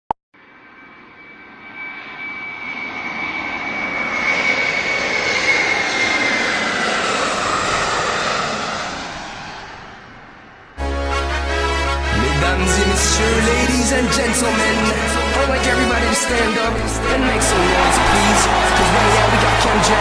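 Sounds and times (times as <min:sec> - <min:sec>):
aircraft flying past: 0:00.4 - 0:20.0.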